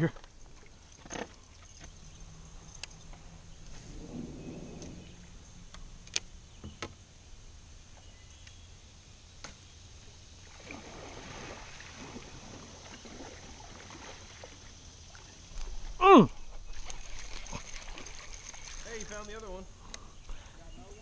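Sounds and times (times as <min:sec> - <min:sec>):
water lapping against kayak hull: 0:03.2 - 0:06.2, 0:10.4 - 0:20.5.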